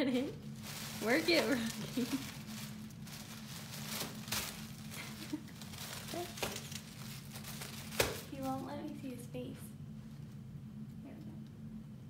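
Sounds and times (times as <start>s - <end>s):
steady low hum: 0.0s - 12.0s
faint clicks and rustles: 0.5s - 9.2s.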